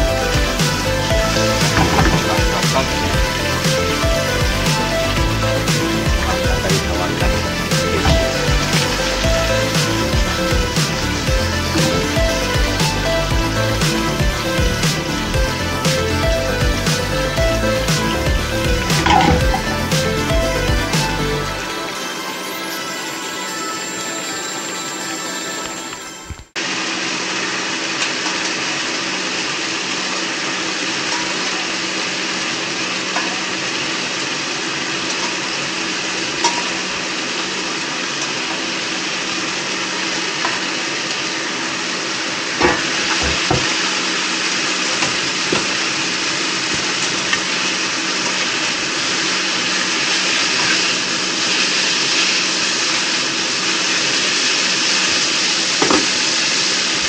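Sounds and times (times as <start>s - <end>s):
spaghetti sizzling in frying pan: 26.6s - 57.0s.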